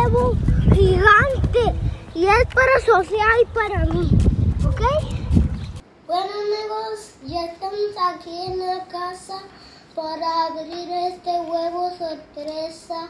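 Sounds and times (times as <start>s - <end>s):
child singing: 6.1s - 13.0s.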